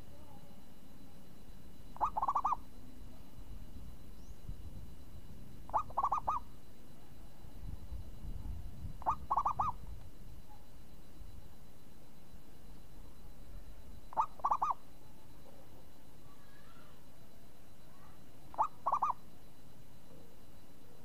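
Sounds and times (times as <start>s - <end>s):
zebra dove cooing: 1.9s - 2.8s, 5.6s - 6.5s, 8.9s - 9.9s, 14.1s - 15.7s, 17.9s - 19.3s.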